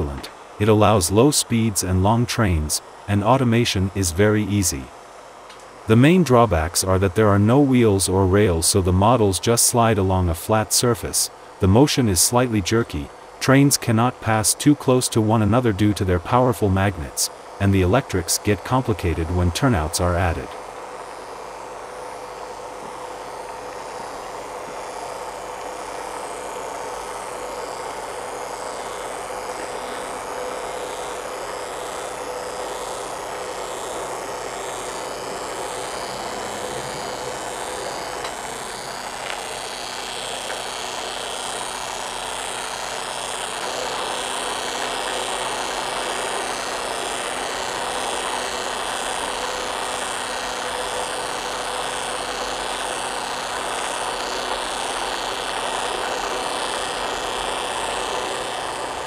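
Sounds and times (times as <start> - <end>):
linear motor track buzzing: 0.0 - 59.0.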